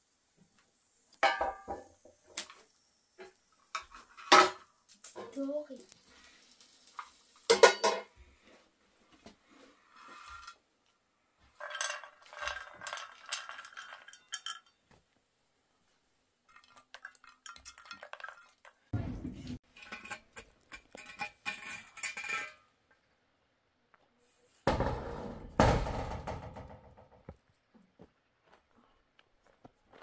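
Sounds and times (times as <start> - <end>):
pan and plate clinking: 1.2 - 1.9, 7.0 - 8.2, 11.6 - 14.8, 16.5 - 22.7
popcorn rattling onto plate: 11.6 - 14.8, 16.5 - 18.8.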